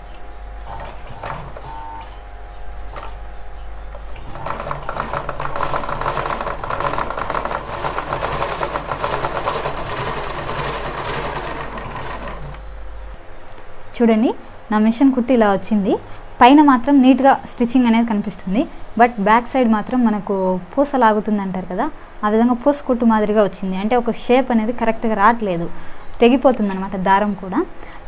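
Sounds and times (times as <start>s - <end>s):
sewing machine stitching: 0.6s - 2.0s, 4.0s - 12.6s.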